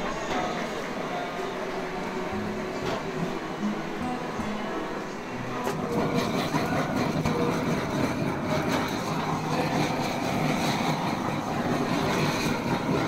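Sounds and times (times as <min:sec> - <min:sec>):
blowtorch rushing: 0:05.6 - 0:13.0.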